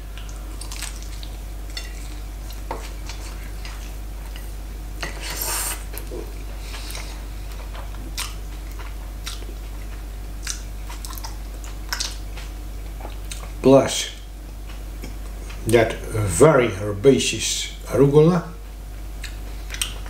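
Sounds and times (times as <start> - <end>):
person chewing wetly: 0.1 - 4.4, 5.9 - 13.6, 19.2 - 20.0.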